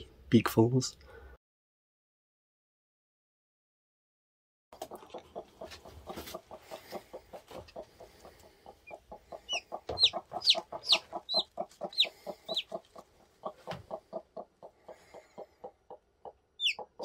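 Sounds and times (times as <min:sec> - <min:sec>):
chick peeping: 0:04.8 - 0:17.0
hen clucking softly: 0:04.8 - 0:17.0.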